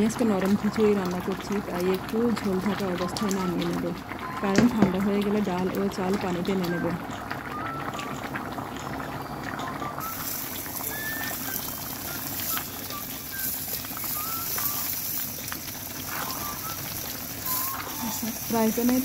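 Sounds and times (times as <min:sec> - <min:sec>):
thick food bubbling in a pan: 0:00.0 - 0:19.0
steady high hiss: 0:10.0 - 0:19.0.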